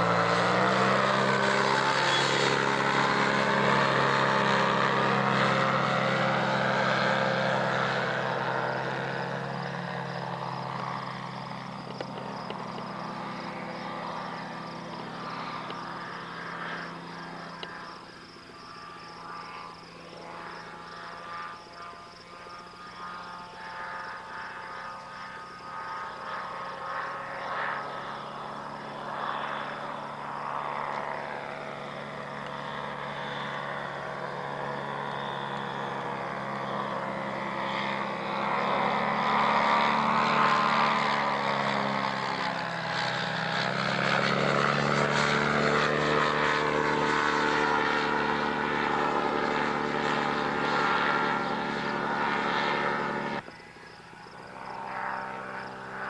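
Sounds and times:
ultralight plane engine droning: 0.0 - 56.0.

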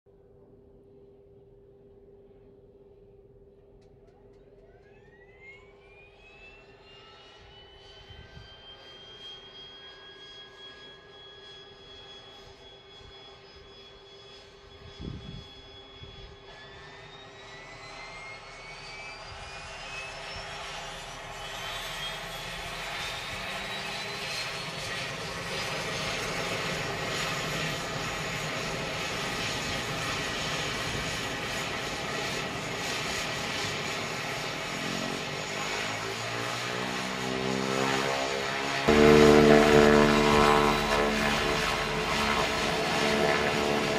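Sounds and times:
turboprop engine whine rising: 0.3 - 43.9
multi-tone hum rising in pitch: 34.4 - 43.9.

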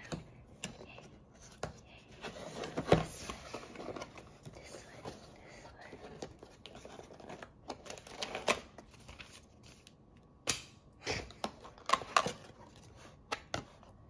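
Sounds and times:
cardboard and paper rustling: 0.1 - 10.0.

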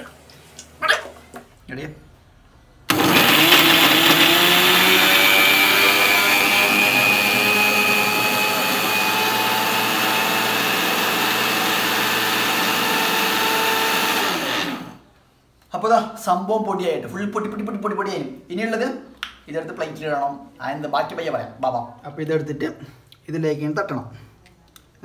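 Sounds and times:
mixer grinder running: 2.9 - 15.0.

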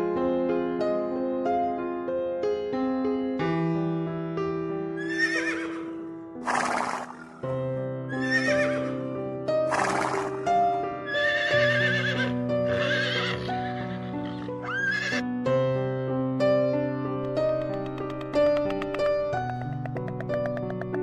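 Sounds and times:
horse whinnying: 5.0 - 7.4, 8.1 - 9.0, 9.7 - 10.4, 11.1 - 15.2
sustained keyboard music: 16.4 - 21.0.

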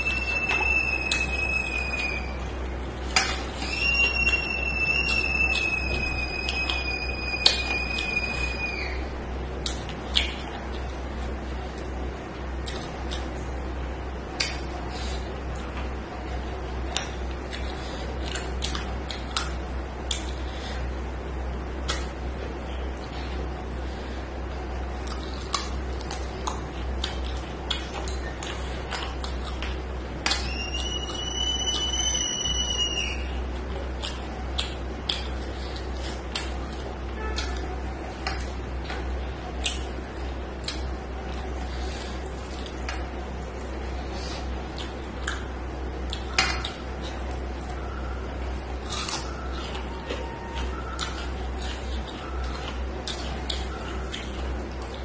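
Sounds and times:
wet chewing: 0.0 - 13.6, 14.3 - 21.0, 24.7 - 55.0
steady low hum: 0.0 - 55.0
lip smacks: 9.6 - 11.0, 14.3 - 15.6, 16.9 - 20.9, 21.8 - 22.2, 25.0 - 31.9, 33.6 - 39.9, 40.6 - 47.8, 48.6 - 55.0.

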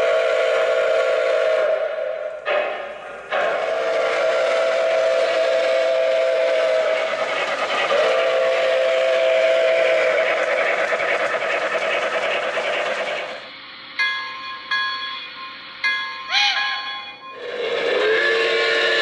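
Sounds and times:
model locomotive whistle blasts: 0.0 - 10.6, 16.2 - 19.0.

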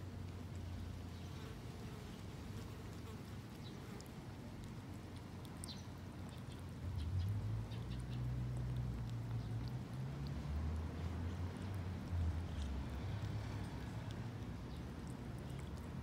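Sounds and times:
cat chewing and licking: 0.0 - 16.0.

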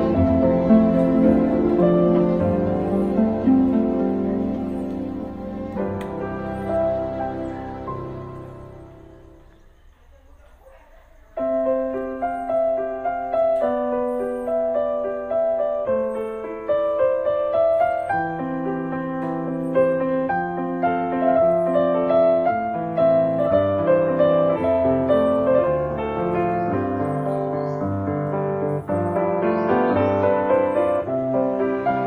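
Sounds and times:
slow piano music: 0.0 - 10.0, 11.1 - 32.0.

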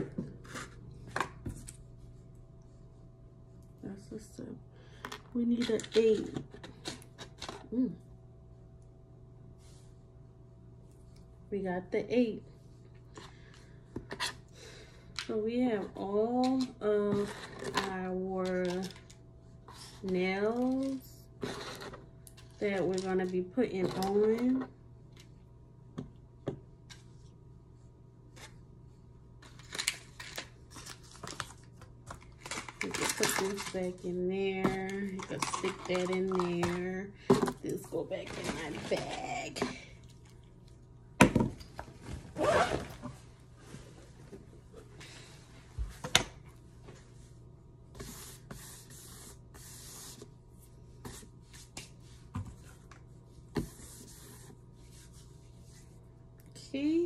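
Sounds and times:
scraping of small items: 29.4 - 34.0, 34.6 - 40.0
packaging crinkling: 29.6 - 34.0.

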